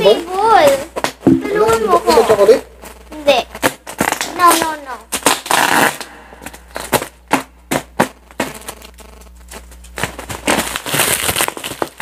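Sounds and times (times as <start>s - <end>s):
bubble wrap crinkling: 0.0s - 12.0s
rustling: 8.2s - 12.0s.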